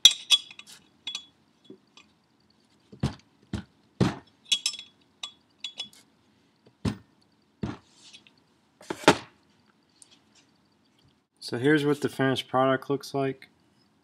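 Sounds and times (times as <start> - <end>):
wrench clinking on metal nut: 0.0 - 1.4, 4.5 - 6.0.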